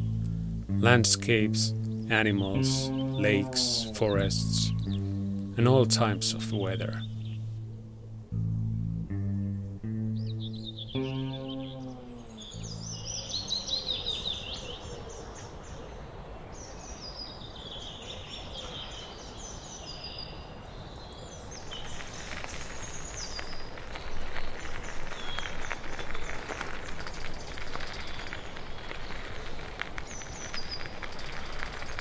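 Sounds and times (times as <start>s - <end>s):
songbirds singing: 0.0s - 32.0s
crackling clicks: 21.7s - 32.0s.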